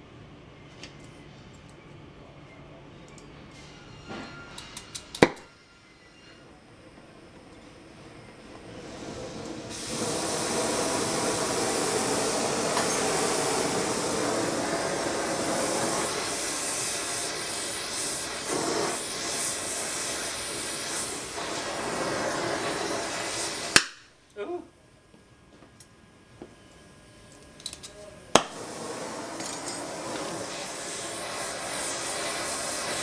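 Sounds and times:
gas torch flame hissing: 0:07.2 - 0:24.2, 0:28.0 - 0:33.0
flame cutting off with pop: 0:09.4 - 0:24.1, 0:27.6 - 0:33.0.

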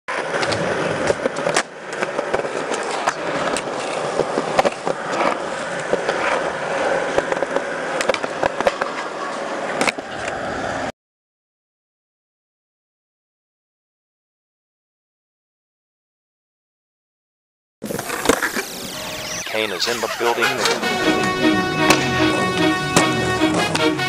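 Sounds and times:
skateboard clacking on ground: 0:00.1 - 0:10.4
skateboard wheels rolling: 0:00.1 - 0:10.9, 0:17.8 - 0:24.0.

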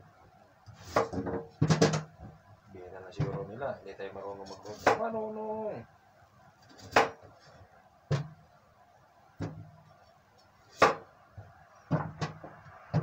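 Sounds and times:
knife chopping on cutting board: 0:10.8 - 0:11.0.

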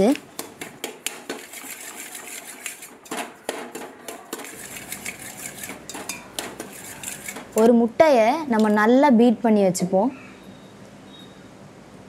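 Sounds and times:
spoon scraping a steel pot: 0:01.3 - 0:07.7.

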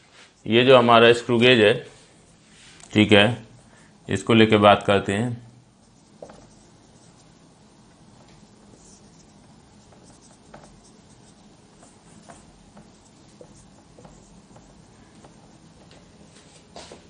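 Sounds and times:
marker writing on whiteboard: 0:05.8 - 0:16.8.

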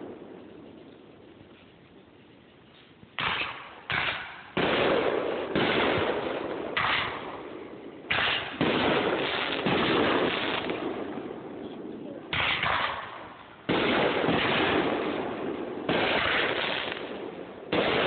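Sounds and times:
firework reports: 0:00.0 - 0:18.0
firework crackling hiss: 0:16.0 - 0:17.2.

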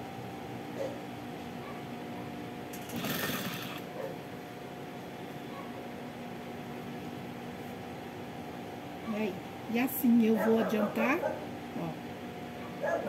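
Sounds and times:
sewing machine motor hum: 0:02.7 - 0:03.9.

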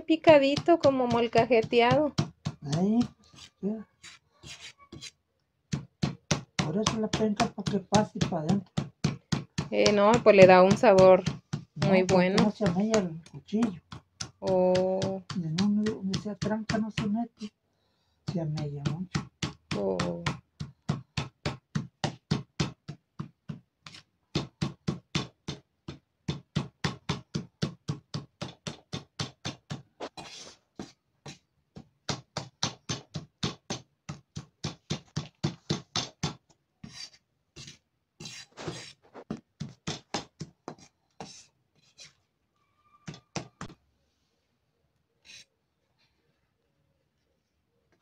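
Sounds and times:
knife chopping on a leaf: 0:00.6 - 0:03.5, 0:05.7 - 0:17.5, 0:18.3 - 0:30.2.

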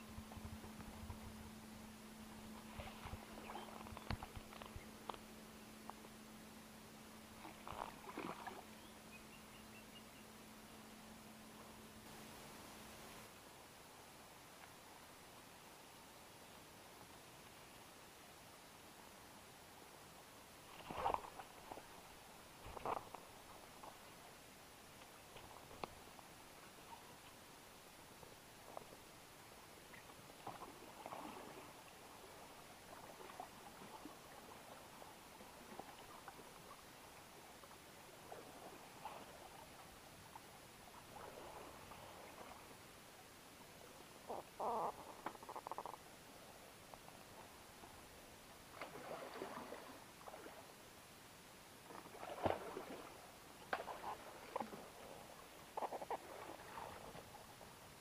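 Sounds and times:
water lapping against kayak: 0:00.0 - 0:06.2, 0:07.2 - 0:10.0, 0:20.6 - 0:50.9, 0:51.7 - 0:58.0.

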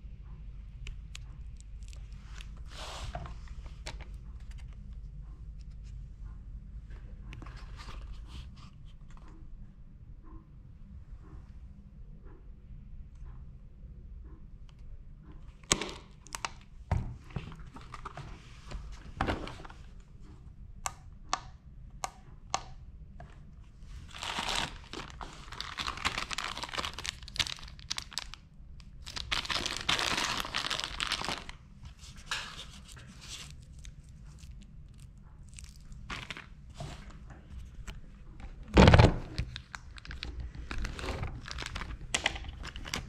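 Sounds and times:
plastic bag crinkling: 0:23.9 - 0:37.1, 0:39.3 - 0:43.0.

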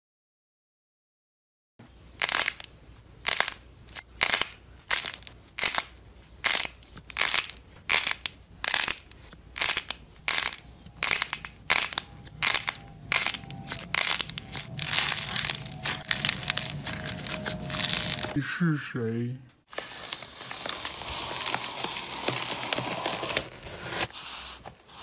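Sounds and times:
slime crackling squishes: 0:03.3 - 0:18.4.

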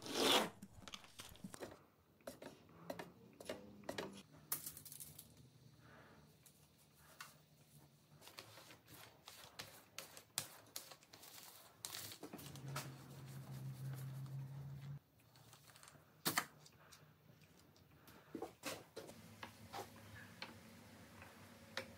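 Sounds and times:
paint roller and foil tray crinkling: 0:00.0 - 0:01.6, 0:08.1 - 0:14.6.

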